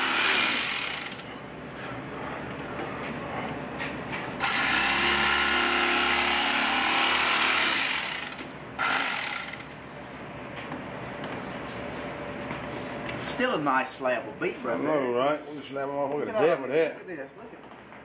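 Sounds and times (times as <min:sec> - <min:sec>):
electric carving knife buzzing: 0:00.0 - 0:01.3, 0:04.4 - 0:09.7.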